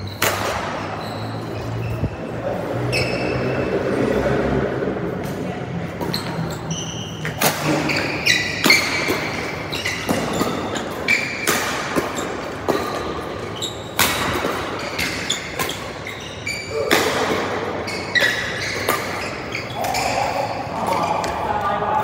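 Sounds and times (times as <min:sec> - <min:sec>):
rackets hitting shuttlecock: 0:00.0 - 0:01.6, 0:05.2 - 0:21.4
shoes squeaking on floor: 0:00.0 - 0:03.9, 0:06.0 - 0:21.4.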